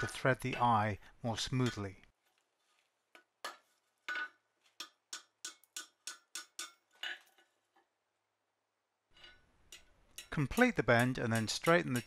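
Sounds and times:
hammer striking hot steel: 3.4 - 6.9, 9.2 - 12.0.

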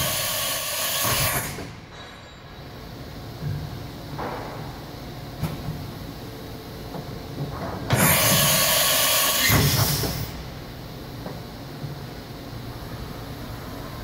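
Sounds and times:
machine air hiss: 0.0 - 1.9, 7.9 - 10.6.

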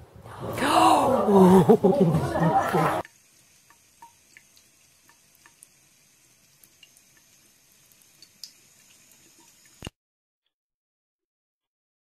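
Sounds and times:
water trickling from faucet into sink: 3.0 - 10.0
cat drinking water: 3.4 - 9.8.

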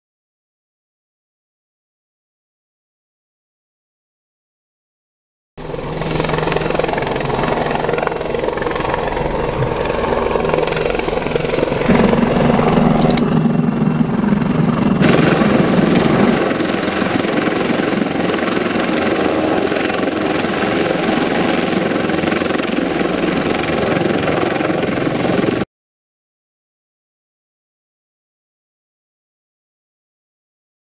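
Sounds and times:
high engine whine: 5.6 - 25.6
helicopter rotor noise: 5.6 - 25.7.

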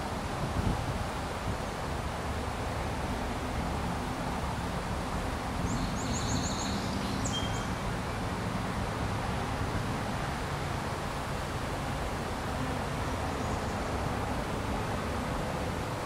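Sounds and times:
bird chirping: 5.7 - 7.8
bird whistle: 5.8 - 7.7.

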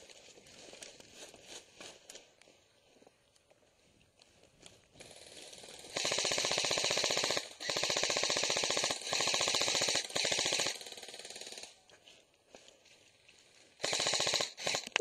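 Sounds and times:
airsoft rifle firing full auto: 5.0 - 11.8, 13.8 - 15.0.

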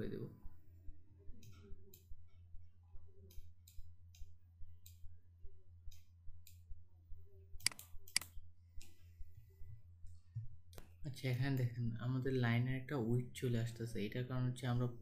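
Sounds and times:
low steady hum: 0.0 - 15.0
computer mouse clicking: 7.6 - 9.0.

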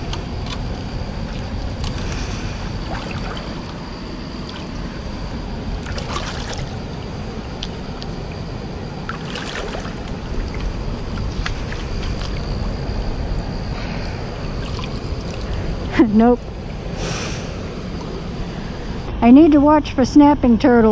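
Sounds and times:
water sloshing and trickling: 0.0 - 16.9
steady low rumble: 0.0 - 20.9
short splashes: 5.8 - 6.7, 9.1 - 10.6.

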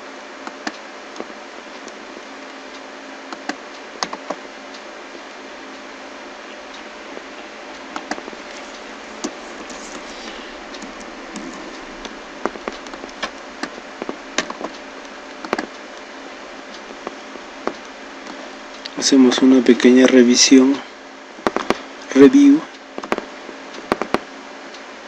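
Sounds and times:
microphone hiss: 0.0 - 25.0
mouse and keyboard clicks: 3.3 - 4.4, 8.0 - 14.8, 15.4 - 15.7, 23.0 - 24.2.

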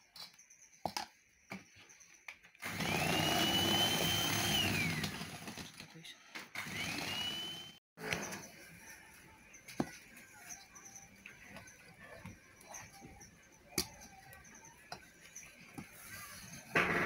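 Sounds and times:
electric hand mixer whining: 2.6 - 5.7, 6.6 - 7.8.

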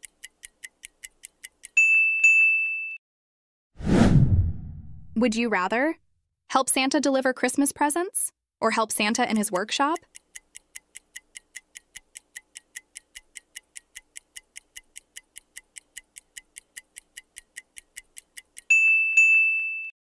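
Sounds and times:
clock ticking: 0.0 - 1.8, 8.8 - 18.9.

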